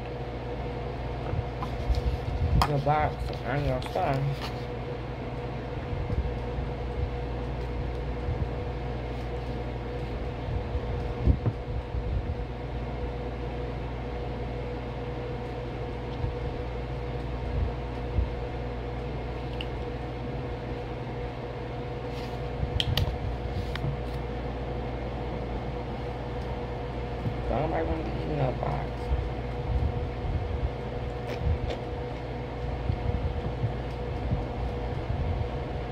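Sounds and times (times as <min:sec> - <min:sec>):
mechanical hum: 0:00.0 - 0:35.9.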